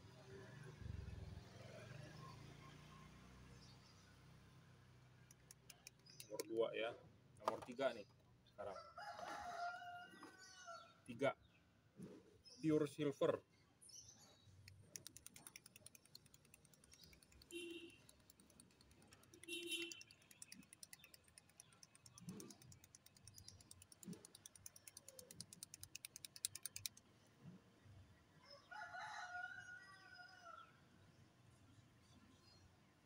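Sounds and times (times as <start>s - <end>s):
mixing ball rattling in paint pen: 5.3s - 6.6s, 14.6s - 27.0s.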